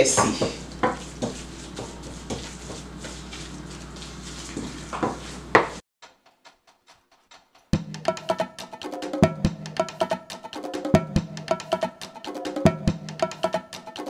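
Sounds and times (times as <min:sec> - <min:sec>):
wooden spoon scraping metal bowl: 0:00.0 - 0:05.8.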